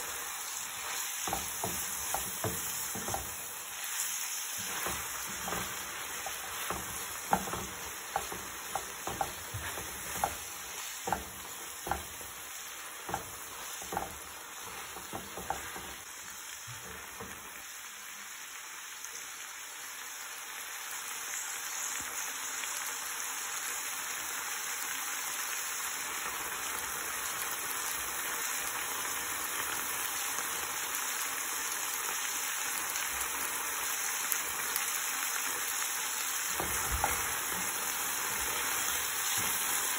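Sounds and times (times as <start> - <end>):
food sizzling in oil: 0.0 - 39.9
utensil knocking against pan: 1.2 - 3.4, 4.6 - 12.4, 13.0 - 16.0, 36.5 - 39.7.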